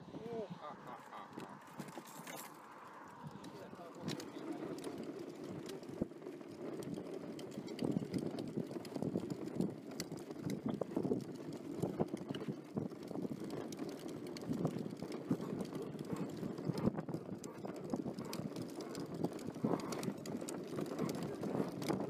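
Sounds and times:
fishing rods knocking and rustling: 0:01.1 - 0:04.3.

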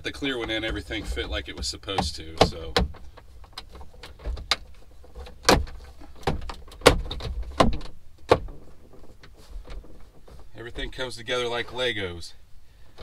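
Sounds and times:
plastic trim clicking and knocking: 0:00.4 - 0:10.1.

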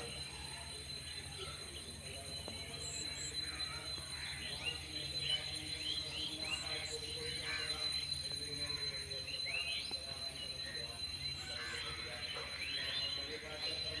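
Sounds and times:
small birds chirping: 0:00.0 - 0:14.0
steady high-pitched tone: 0:00.0 - 0:14.0.

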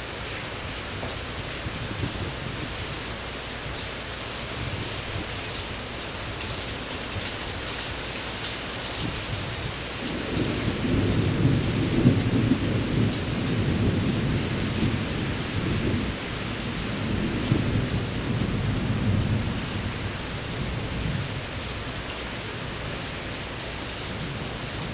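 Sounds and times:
steady rain: 0:00.0 - 0:24.9
thunder rolling: 0:10.0 - 0:16.2.

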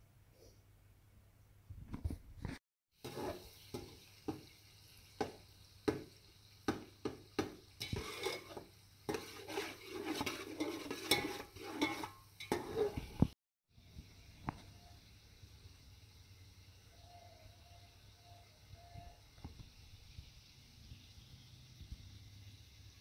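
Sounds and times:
onions sizzling in oil: 0:02.9 - 0:23.0
utensil clinking against pot: 0:07.4 - 0:13.1.

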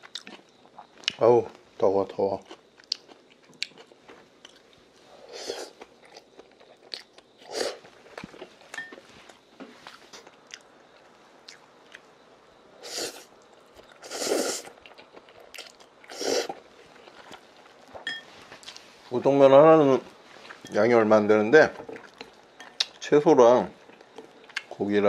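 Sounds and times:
person chewing: 0:00.0 - 0:01.2, 0:02.4 - 0:12.0, 0:12.8 - 0:18.9, 0:21.8 - 0:23.0, 0:23.8 - 0:24.8
person slurping noodles: 0:12.8 - 0:13.3, 0:14.0 - 0:14.7, 0:16.1 - 0:16.6.

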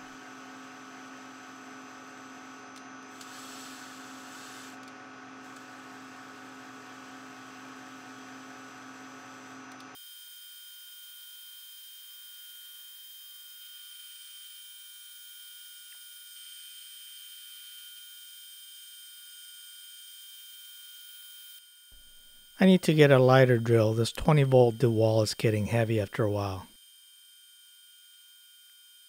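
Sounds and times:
cutting hiss: 0:03.2 - 0:04.8.

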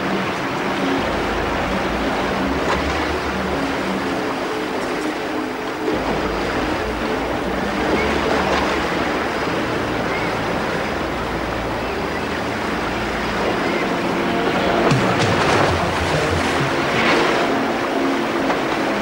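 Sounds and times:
low steady hum: 0:00.0 - 0:19.0
waterfall rushing: 0:09.0 - 0:19.0.

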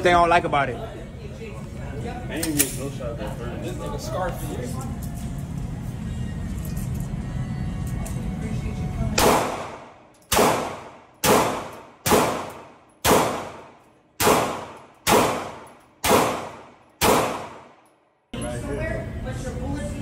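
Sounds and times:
gunshots with ringing echo: 0:09.2 - 0:17.9.

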